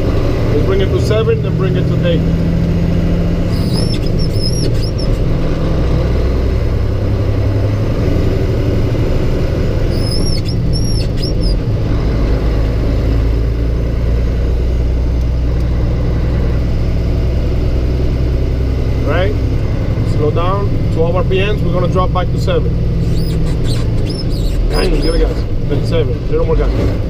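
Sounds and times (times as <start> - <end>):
truck diesel engine droning: 0.0 - 27.0
short high chirps: 3.5 - 5.2, 10.0 - 11.6, 23.0 - 25.2.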